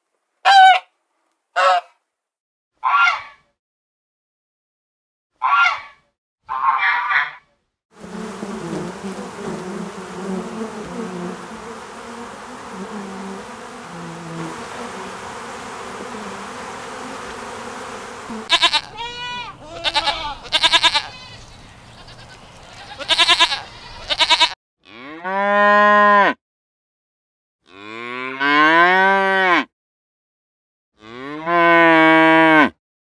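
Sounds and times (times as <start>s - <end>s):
bees buzzing: 8.0s - 20.6s
duck calling: 18.5s - 21.1s
goat bleating: 18.5s - 24.6s.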